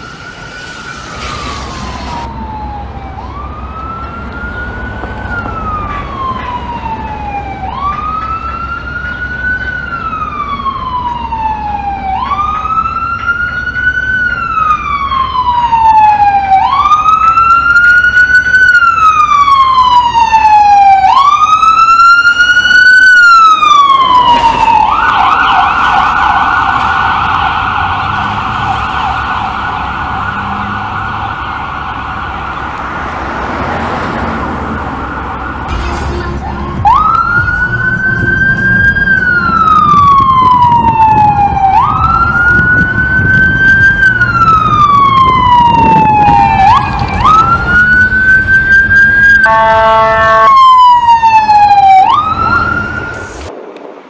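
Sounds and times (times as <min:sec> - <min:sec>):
fire engine siren wailing: 0:00.0 - 0:53.6
siren fast yelp: 0:38.8 - 0:53.2.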